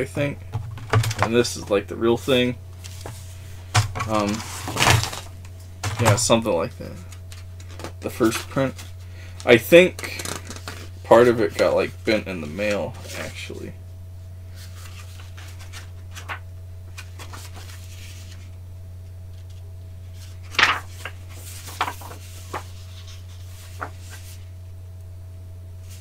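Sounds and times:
steady low hum: 0:00.0 - 0:26.0
paper rustling: 0:02.8 - 0:06.3, 0:06.9 - 0:13.5, 0:14.5 - 0:18.6, 0:19.3 - 0:24.6, 0:25.8 - 0:26.0.

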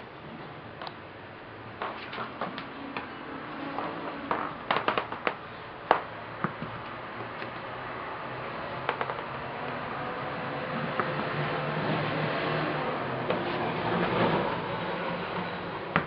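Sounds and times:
tennis ball taps and clicks: 0:04.3 - 0:07.6, 0:08.8 - 0:09.8, 0:11.0 - 0:11.4.

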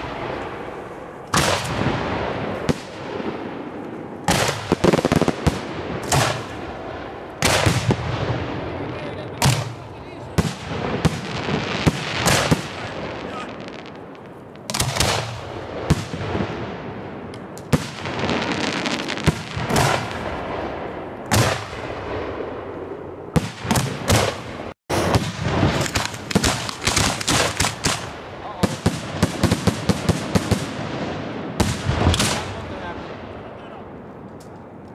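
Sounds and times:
firework shell bursts crackling: 0:23.6 - 0:28.2.

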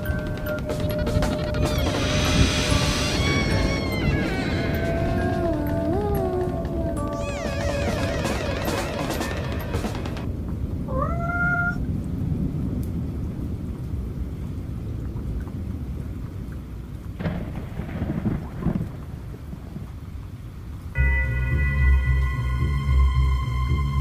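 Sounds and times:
sharp thunder crackles: 0:00.0 - 0:10.8, 0:17.2 - 0:20.2
low rumbling thunder: 0:00.0 - 0:16.0, 0:17.2 - 0:20.2
steady rain: 0:00.0 - 0:24.0
cat meowing: 0:01.6 - 0:05.8, 0:10.9 - 0:11.9.

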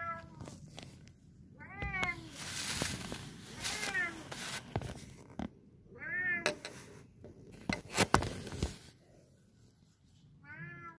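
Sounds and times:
cat meowing: 0:10.4 - 0:11.0.

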